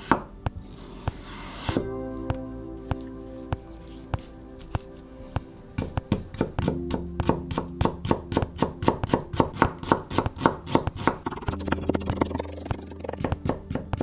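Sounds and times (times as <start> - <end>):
knife chopping on wooden board: 5.4 - 11.4.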